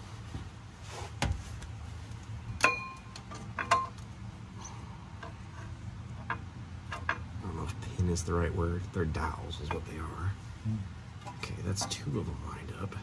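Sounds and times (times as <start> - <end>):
metal clinks: 2.6 - 4.0.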